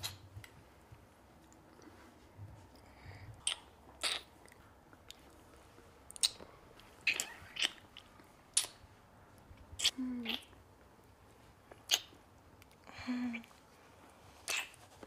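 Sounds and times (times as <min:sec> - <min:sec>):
wet kissing smacks: 0:03.4 - 0:04.3, 0:07.0 - 0:08.8, 0:11.8 - 0:12.2, 0:14.5 - 0:14.8.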